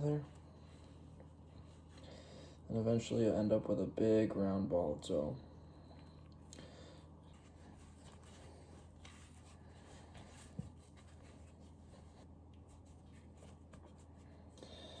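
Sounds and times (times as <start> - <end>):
hands kneading dough: 5.9 - 14.5.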